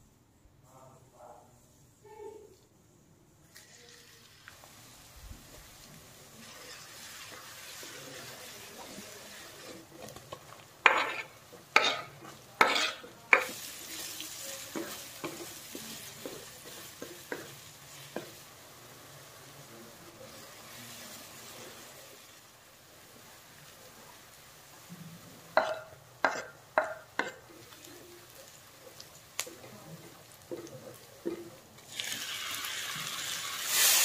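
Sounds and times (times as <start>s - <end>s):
ginger and garlic sizzling in oil: 3.4s - 34.0s
loud bursts of sizzling: 3.5s - 26.2s, 31.8s - 34.0s
spatula knocking and scraping pan: 8.8s - 13.7s, 14.7s - 18.4s, 25.6s - 27.6s, 30.4s - 31.6s.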